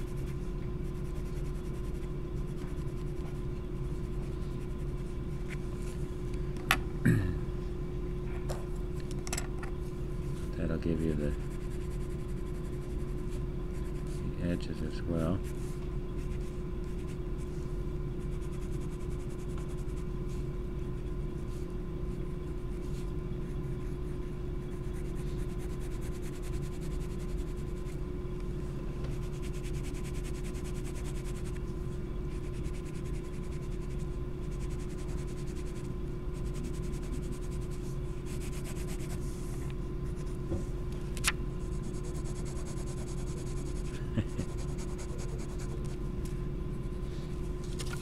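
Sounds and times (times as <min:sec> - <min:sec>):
pencil scratching on paper: 0:00.0 - 0:05.2, 0:10.8 - 0:14.2, 0:18.2 - 0:20.0, 0:22.5 - 0:28.0, 0:29.2 - 0:31.6, 0:32.3 - 0:39.4, 0:41.6 - 0:46.0
steady background hum: 0:00.0 - 0:48.0.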